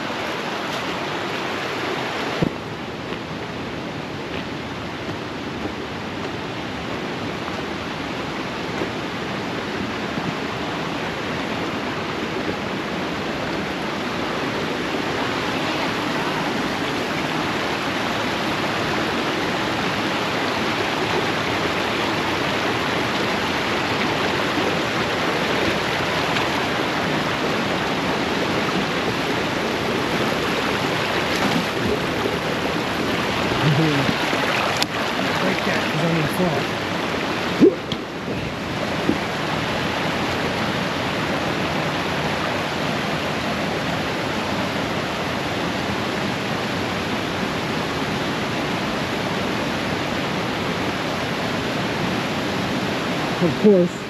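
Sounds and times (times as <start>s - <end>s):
brook water rushing over rocks: 0.0s - 54.0s.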